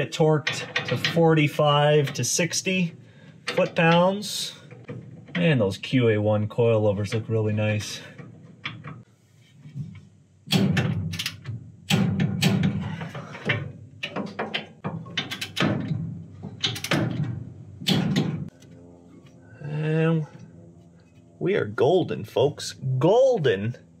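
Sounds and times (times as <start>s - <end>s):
metal clanks and clicks of tools: 0.4s - 2.5s, 3.4s - 5.7s, 10.5s - 18.7s.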